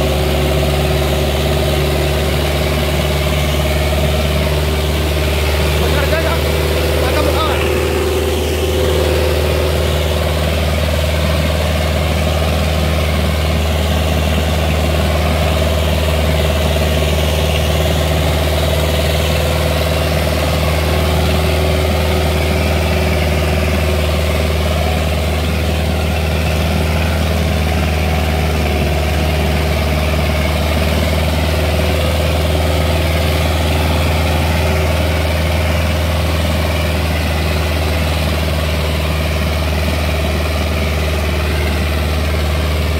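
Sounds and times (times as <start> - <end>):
tractor diesel engine droning: 0.0 - 42.9.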